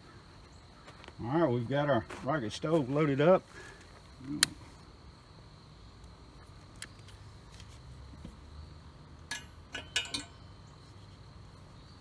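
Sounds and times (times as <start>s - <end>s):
sharp metallic clinks: 9.2s - 10.6s.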